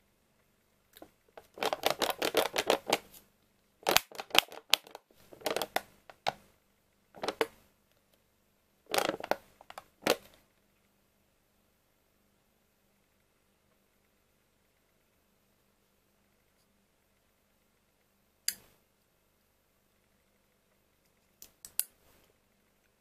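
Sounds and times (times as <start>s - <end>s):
plastic cup crackling and clicking: 1.0s - 3.2s, 3.8s - 6.4s, 7.2s - 7.6s, 8.9s - 10.4s.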